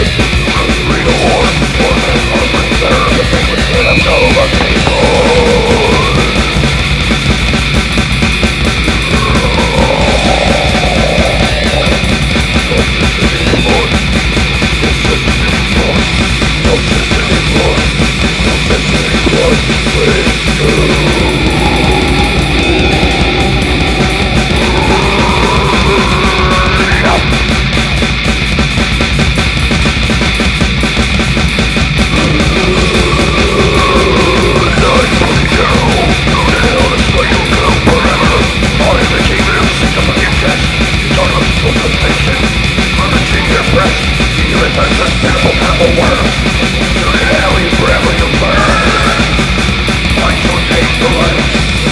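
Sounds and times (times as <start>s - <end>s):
distorted guitars: 0.0s - 51.9s
fast dense drumming: 0.0s - 51.9s
long held rising note: 20.6s - 28.1s.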